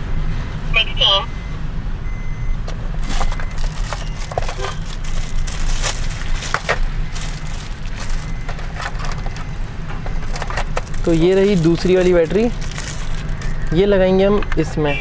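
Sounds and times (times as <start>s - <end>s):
car cabin low hum: 2.0s - 13.7s
plastic packaging crinkling: 3.0s - 13.7s.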